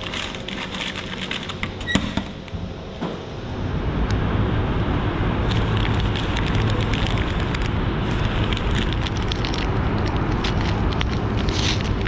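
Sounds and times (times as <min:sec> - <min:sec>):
paper wrapper crinkling: 0:00.0 - 0:01.7, 0:05.5 - 0:12.0.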